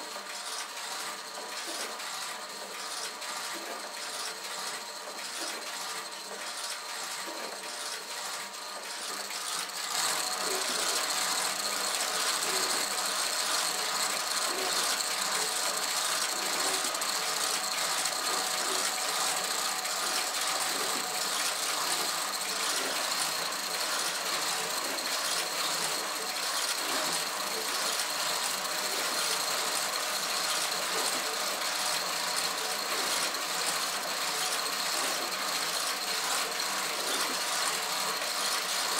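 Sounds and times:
clatter of gears and ratchets: 0.0s - 38.9s.

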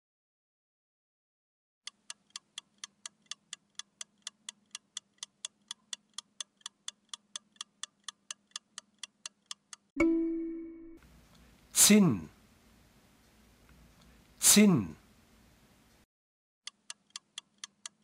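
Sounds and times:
clock ticking: 1.8s - 9.9s, 16.6s - 18.0s.

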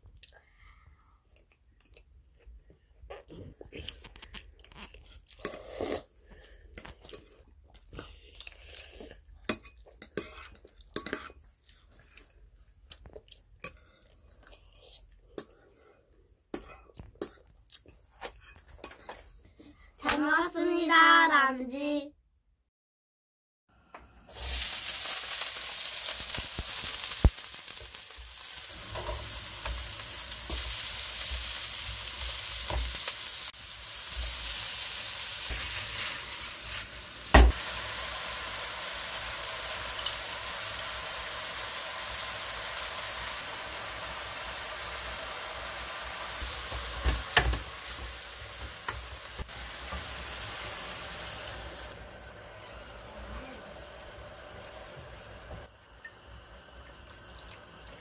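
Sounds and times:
meat sizzling in a frying pan: 24.3s - 57.8s.

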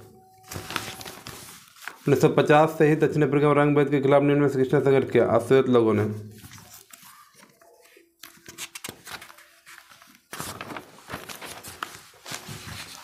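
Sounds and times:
paper sheet turned over: 0.4s - 2.1s, 6.4s - 13.0s
paper rustling: 0.4s - 2.3s, 6.2s - 13.0s.

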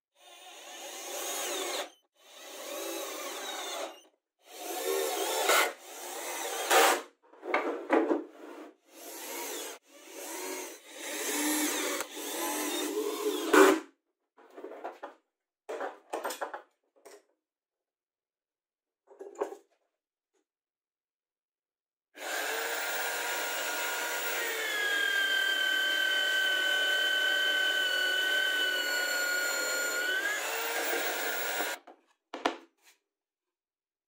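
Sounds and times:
cordless drill driving screws: 0.2s - 7.0s, 8.9s - 13.8s, 22.2s - 31.8s.

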